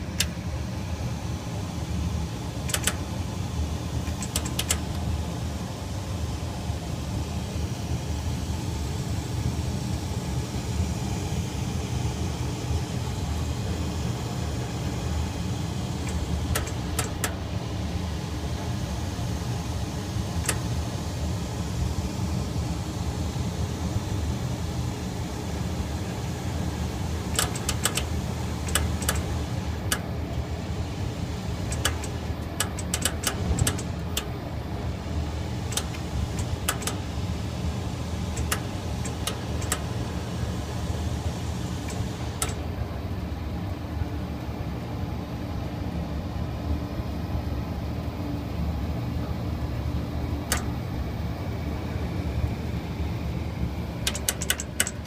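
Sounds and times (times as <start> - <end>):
furnace burners rumbling: 0.0 - 55.0
sharp clicks: 2.7 - 3.0, 4.0 - 5.0, 16.0 - 17.4, 27.3 - 29.3, 31.7 - 34.3, 35.7 - 37.0, 38.3 - 39.8, 41.8 - 42.6, 50.5 - 50.7, 54.0 - 55.0.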